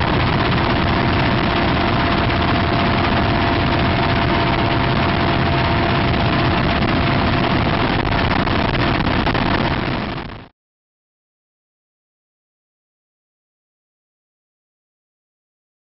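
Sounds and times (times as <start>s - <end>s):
helicopter rotor and engine noise: 0.0s - 10.5s
steady whine: 0.0s - 10.5s.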